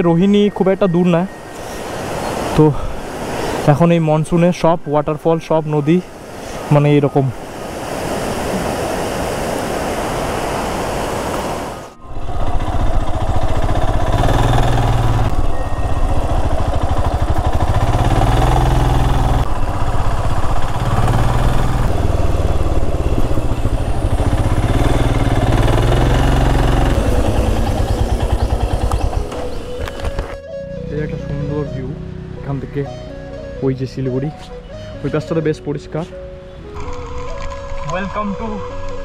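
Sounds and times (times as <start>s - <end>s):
rushing mountain stream: 0.9s - 12.0s
motorcycle engine accelerating: 12.0s - 30.4s.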